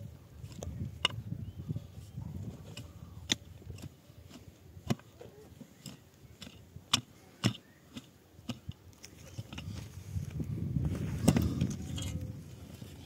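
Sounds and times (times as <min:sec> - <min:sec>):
pickaxe striking earth: 0:02.6 - 0:05.2, 0:05.8 - 0:09.8.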